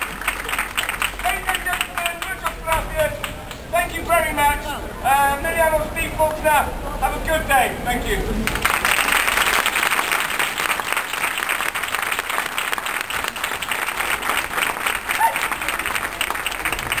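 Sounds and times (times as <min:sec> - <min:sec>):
audience applauding: 0:00.0 - 0:03.7, 0:08.4 - 0:17.0.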